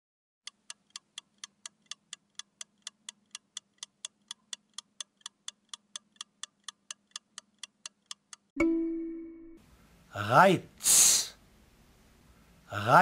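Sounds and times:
quick clock ticking: 0.4 - 8.5.

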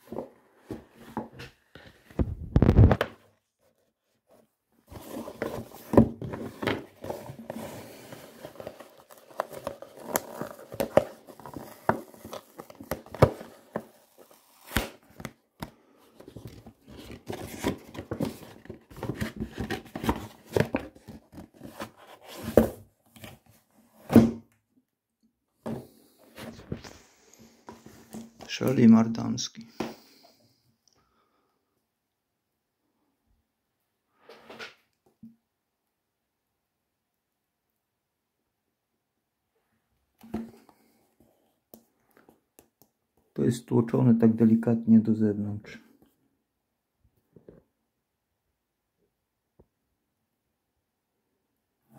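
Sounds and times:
packaging rustling and crinkling: 5.0 - 15.4.

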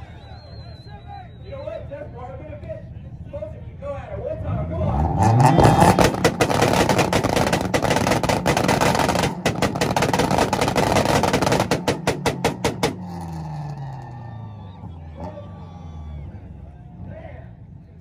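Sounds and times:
car engine on rev limiter: 4.6 - 17.8
exhaust popping and banging: 5.3 - 13.9.

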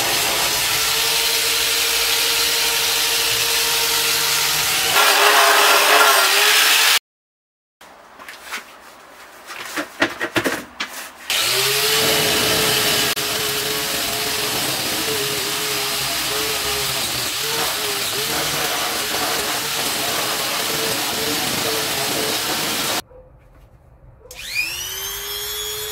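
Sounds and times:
power tool motor hum: 0.0 - 7.0, 11.3 - 23.0, 24.3 - 25.9
wire brush scratching metal: 4.9 - 6.3, 11.9 - 23.0.

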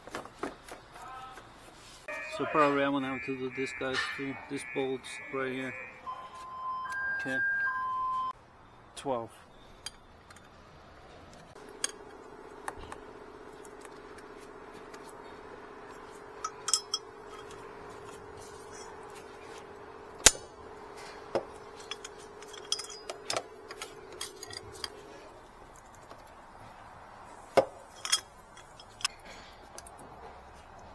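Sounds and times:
steady hum: 11.6 - 29.1
metal hand tools clinking: 11.7 - 12.2, 16.2 - 19.2, 20.2 - 25.3, 27.4 - 29.1.

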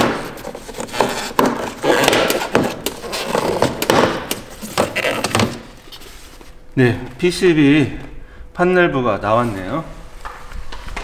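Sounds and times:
plastic parts knocking and scraping: 0.0 - 5.7.

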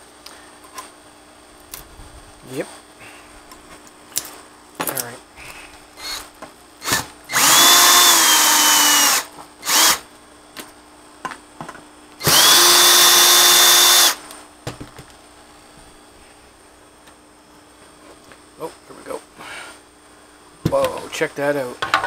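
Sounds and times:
power drill running: 6.0 - 10.1, 12.2 - 14.2.

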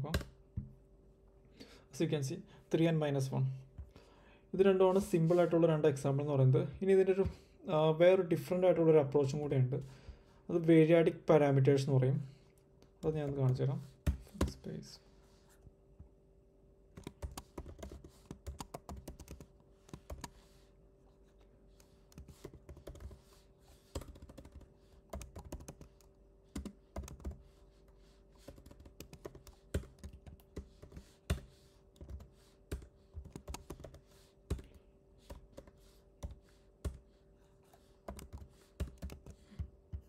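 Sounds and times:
typing on a computer keyboard: 17.0 - 20.4, 22.2 - 23.2, 23.9 - 27.4, 28.4 - 31.4, 32.0 - 34.7, 38.1 - 39.7.

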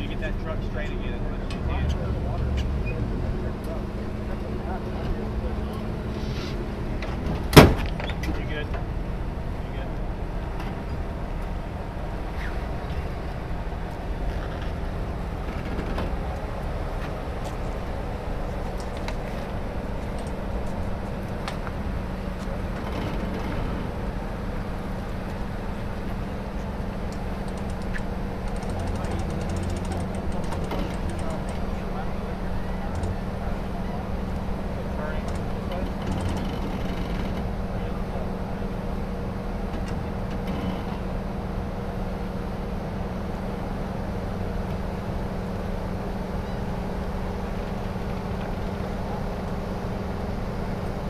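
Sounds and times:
engine running with low hum: 0.0 - 51.0
faint clicks: 27.1 - 31.7.

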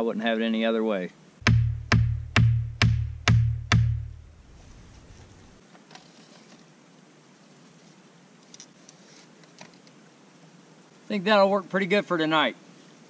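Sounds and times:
faint background hiss: 0.0 - 13.0
hatchet pounding wooden stake: 1.4 - 4.2.

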